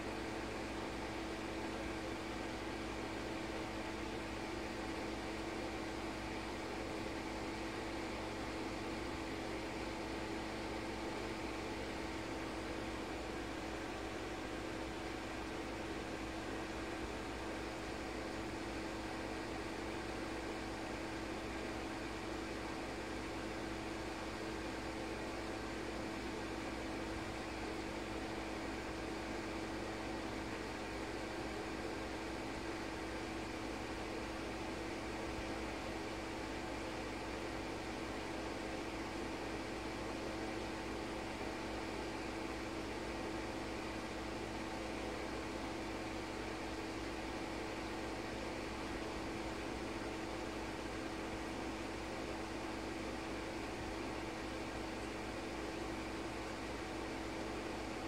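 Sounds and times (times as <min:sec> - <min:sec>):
steady machine hum: 0:00.0 - 0:58.0.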